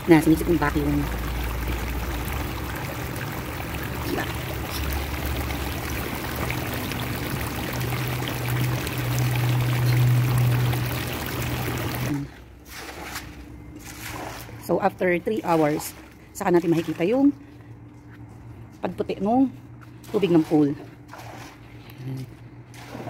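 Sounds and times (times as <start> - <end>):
water gushing from pipe onto grass: 0.0 - 12.3
steady low hum: 0.0 - 23.0.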